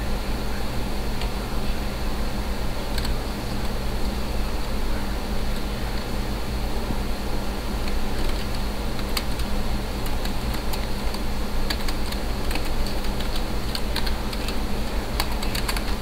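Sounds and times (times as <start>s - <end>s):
steady low hum and hiss: 0.0s - 16.0s
keyboard keys clicking: 3.0s - 3.2s, 7.9s - 14.6s, 15.2s - 16.0s.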